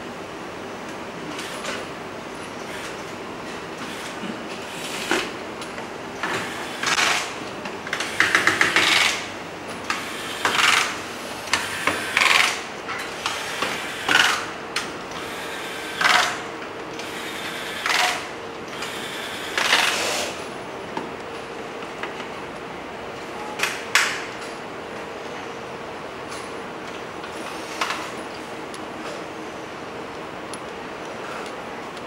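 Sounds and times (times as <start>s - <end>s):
electric screwdriver driving screws: 18.8s - 20.4s.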